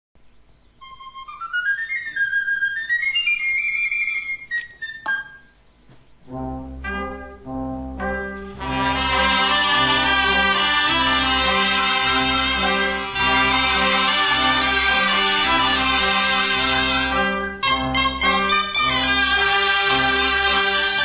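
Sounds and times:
band playing brass chords: 6.3s - 21.0s.

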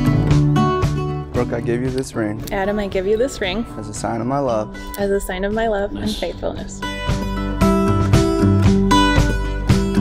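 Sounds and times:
strummed acoustic guitar music: 0.0s - 4.9s, 6.8s - 10.0s.

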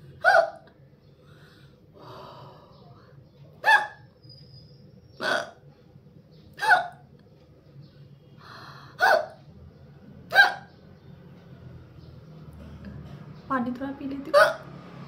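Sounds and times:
quiet breathing: 1.0s - 3.4s, 8.0s - 9.0s.

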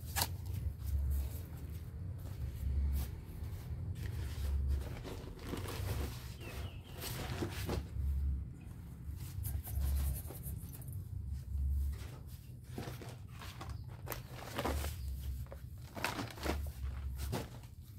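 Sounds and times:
paper sack rustling: 3.5s - 8.4s, 11.7s - 17.9s.

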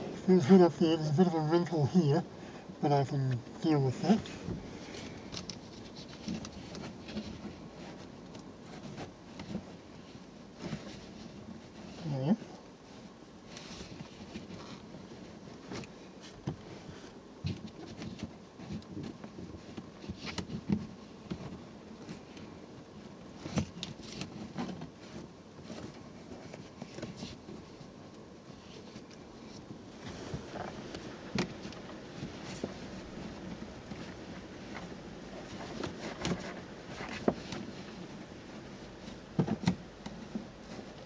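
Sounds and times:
hands rubbing fabric upholstery: 28.5s - 41.0s.

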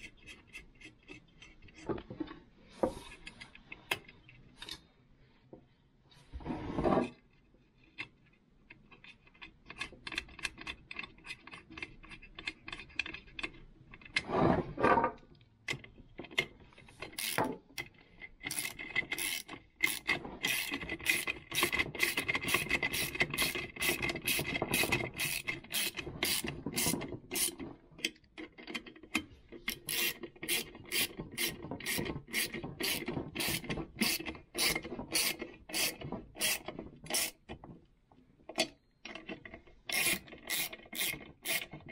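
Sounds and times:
metal parts clicking and rubbing: 7.1s - 14.4s, 15.7s - 37.6s, 38.5s - 41.9s
ratchet wrench clicking: 17.2s - 17.4s, 18.5s - 27.5s, 29.9s - 37.4s, 39.9s - 41.7s.

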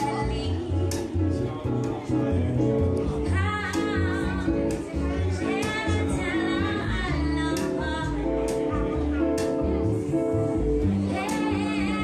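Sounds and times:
woman singing into a microphone: 0.0s - 1.2s, 3.2s - 8.7s, 10.8s - 12.0s
guitar: 0.0s - 12.0s
low bass line: 0.0s - 12.0s.

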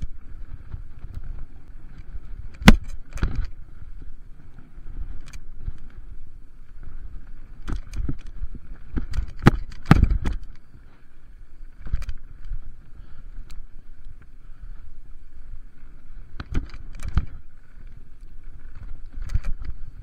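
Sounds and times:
bike knocking and clattering: 0.0s - 4.2s, 4.9s - 11.0s, 11.6s - 12.8s, 16.3s - 20.0s
bike tyres rumbling on dirt: 0.0s - 20.0s.

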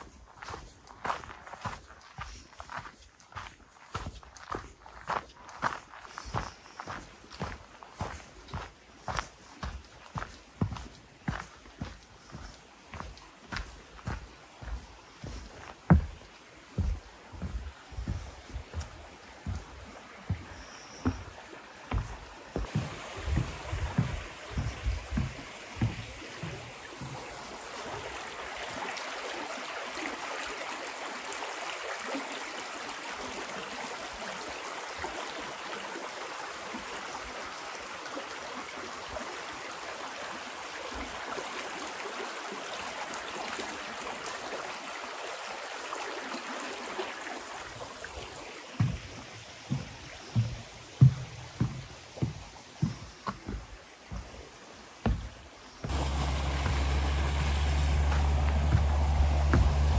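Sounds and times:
footsteps on wooden boardwalk: 0.0s - 29.0s, 47.6s - 59.9s
stream running over rocks: 0.0s - 59.9s.

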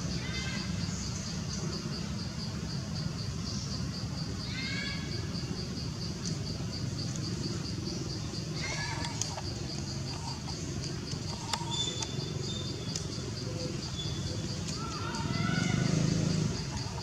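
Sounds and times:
insect chirping steadily: 0.0s - 17.0s
low outdoor rumble: 5.3s - 17.0s.

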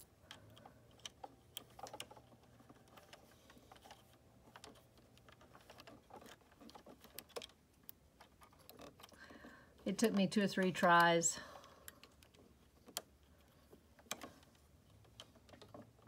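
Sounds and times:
clicks of small plastic and metal parts: 0.0s - 16.0s.

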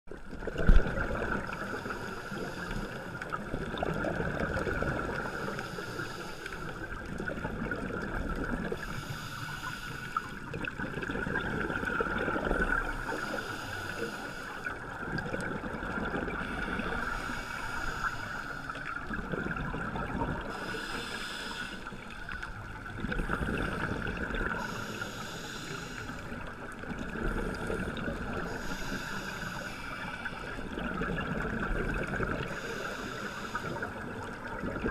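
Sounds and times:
exhaled bubbles: 0.2s - 1.9s, 3.2s - 5.6s, 6.7s - 9.0s, 10.4s - 13.4s, 14.7s - 34.9s
scuba diver breathing through regulator: 0.8s - 3.4s, 4.8s - 7.0s, 8.7s - 10.5s, 12.4s - 14.9s, 16.2s - 19.1s, 20.3s - 30.8s, 32.4s - 34.3s.

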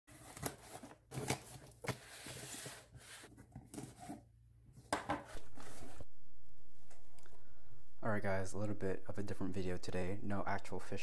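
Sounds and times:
cardboard scraping and rustling: 0.1s - 4.3s, 5.1s - 6.1s.

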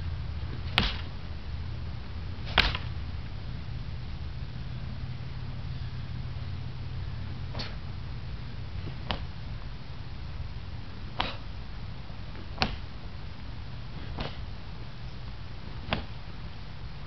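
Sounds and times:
steady low rumble: 0.0s - 17.0s
sharp snaps of strikes: 0.7s - 1.1s, 2.5s - 2.9s, 11.2s - 11.5s, 12.6s - 12.8s, 15.8s - 16.2s.

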